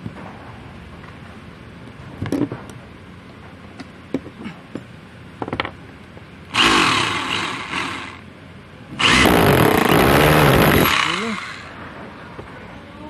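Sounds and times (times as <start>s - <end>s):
rotary hammer motor running: 6.5s - 8.2s, 9.0s - 11.8s.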